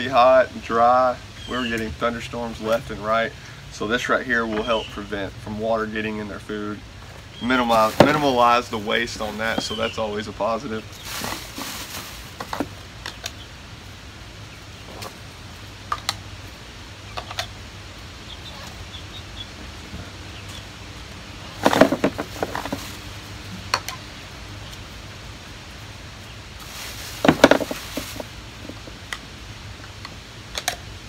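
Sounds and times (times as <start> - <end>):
plastic clatter: 7.7 - 8.3, 21.6 - 23.0, 27.1 - 28.8.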